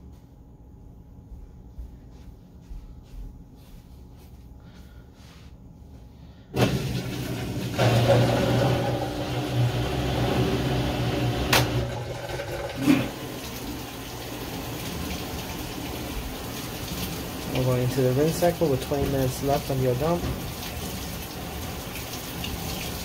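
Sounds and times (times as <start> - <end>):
low motor hum: 6.6 - 17.6
water rushing: 12.3 - 23.0.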